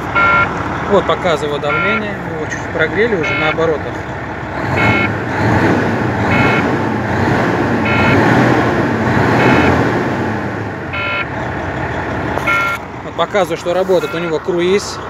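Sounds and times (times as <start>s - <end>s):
short electronic beeps: 0.0s - 0.5s, 1.6s - 2.2s, 3.1s - 3.7s, 4.7s - 5.2s, 6.2s - 6.7s, 7.8s - 8.4s, 9.3s - 9.8s, 10.9s - 11.3s, 12.4s - 12.8s, 13.9s - 14.5s
diesel truck engine revving: 0.0s - 15.0s.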